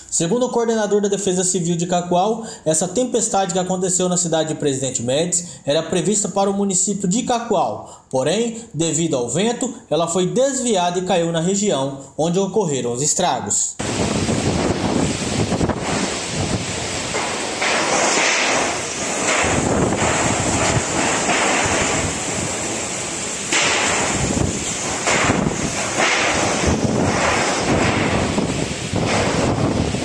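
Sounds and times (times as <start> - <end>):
heavy rain: 13.8 - 30.0
wind buffeting microphone: 13.8 - 30.0
wind rushing: 13.8 - 30.0.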